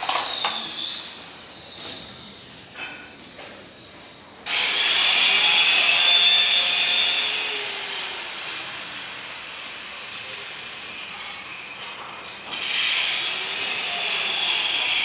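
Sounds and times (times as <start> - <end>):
power tool whining: 0.0 - 2.0, 4.4 - 10.0, 12.5 - 15.0.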